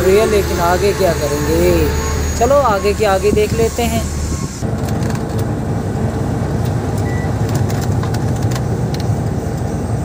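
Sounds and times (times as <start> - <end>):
brief high tone: 0.0 - 4.6
truck engine drone: 0.0 - 10.0.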